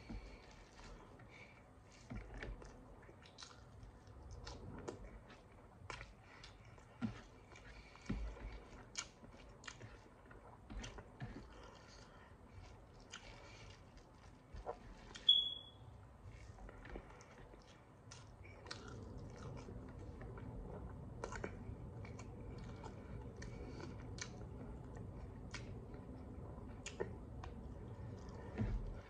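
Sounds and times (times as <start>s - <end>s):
chewing and lip smacking: 0.3s - 15.3s, 16.3s - 29.0s
short high-pitched beep: 15.3s - 15.8s.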